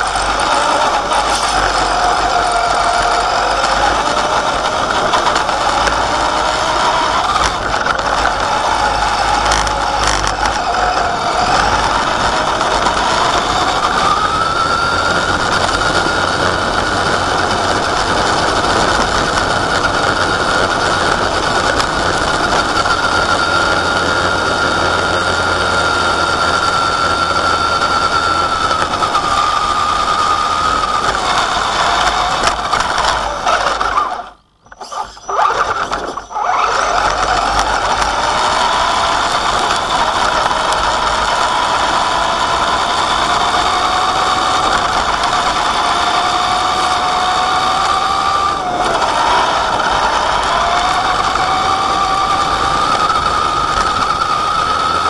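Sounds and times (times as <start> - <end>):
toy truck electric motor whining: 0.0 - 55.0.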